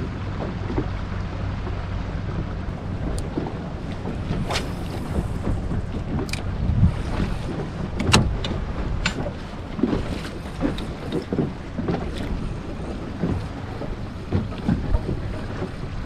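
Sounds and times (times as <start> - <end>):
water lapping against hull: 0.0 - 16.0
wind buffeting microphone: 0.0 - 16.0
sharp clicks and knocks: 8.0 - 9.4.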